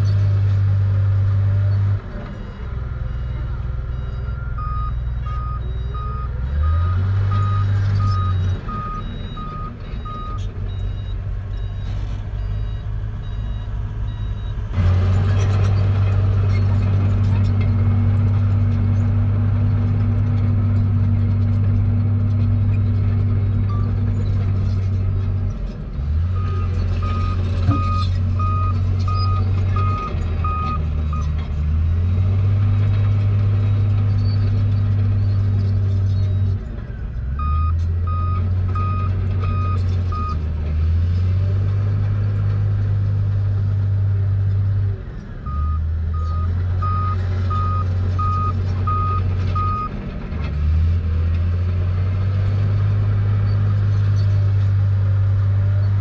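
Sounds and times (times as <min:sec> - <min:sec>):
bulldozer diesel engine: 0:00.0 - 0:56.0
reversing alarm beeps: 0:03.1 - 0:14.6, 0:45.5 - 0:49.9.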